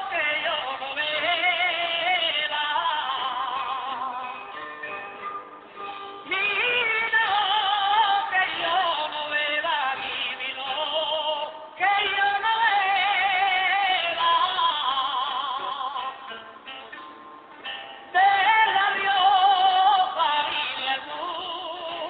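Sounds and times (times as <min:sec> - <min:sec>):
man singing with vibrato: 0:00.0 - 0:04.6, 0:06.2 - 0:16.7, 0:18.1 - 0:22.0.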